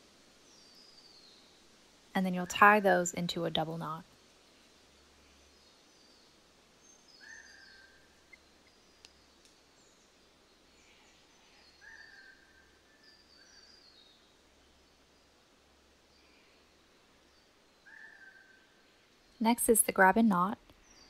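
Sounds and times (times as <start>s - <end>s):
small birds chirping: 4.8s - 21.0s
faint clicks: 8.3s - 9.6s.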